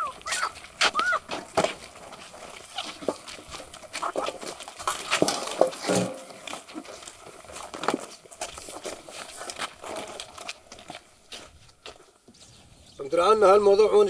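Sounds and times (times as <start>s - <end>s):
short animal cries: 0.0s - 1.2s
sacks knocking and rustling: 0.0s - 12.4s.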